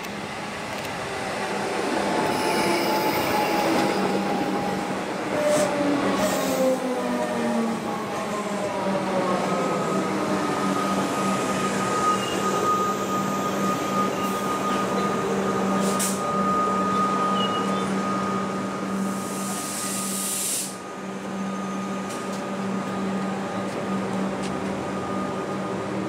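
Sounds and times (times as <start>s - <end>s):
electric train humming: 0.0s - 26.0s
air hiss: 19.1s - 20.8s.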